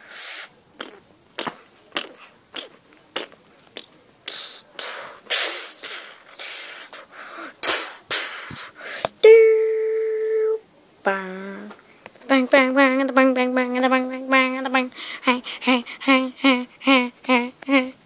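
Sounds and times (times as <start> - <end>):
breathy hissing bursts: 0.0 - 0.6, 4.2 - 9.2.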